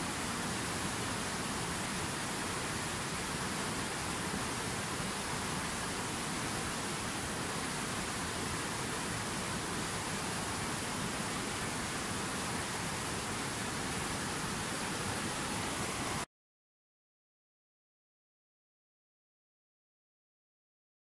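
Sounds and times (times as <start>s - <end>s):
river rushing over rocks: 0.0s - 16.2s.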